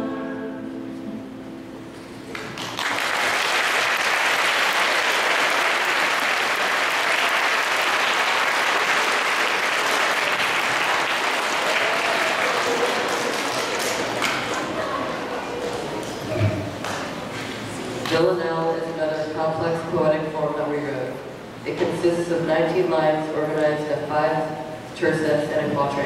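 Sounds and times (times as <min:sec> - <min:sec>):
audience applauding: 0:02.3 - 0:16.2.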